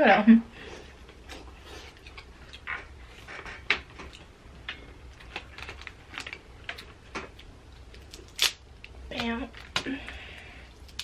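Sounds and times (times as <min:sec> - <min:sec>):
crab shells cracking by hand: 0:07.9 - 0:08.9, 0:10.7 - 0:11.0.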